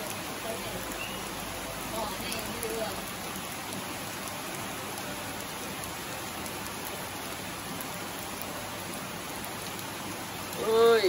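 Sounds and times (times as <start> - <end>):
stream flowing over stones: 0.0 - 11.0.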